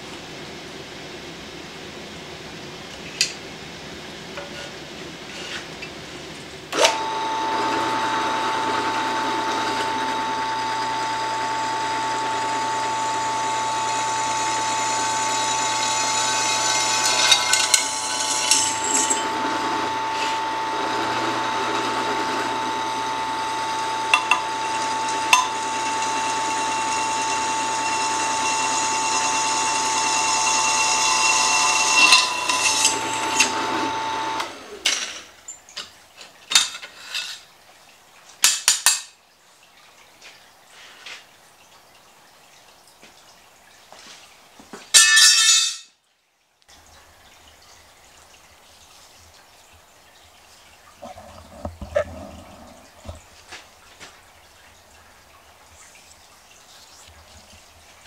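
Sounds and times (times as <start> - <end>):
drill press motor whining: 6.8 - 34.8
drill bit scraping metal: 7.8 - 34.4.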